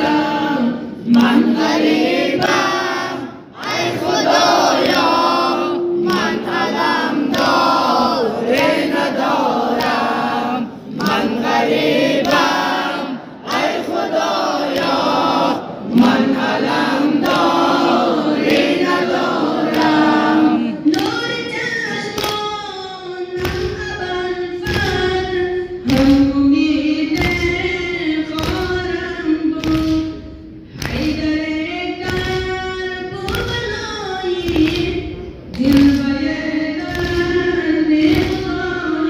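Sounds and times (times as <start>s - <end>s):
steady thumping beat: 23.4s - 30.2s.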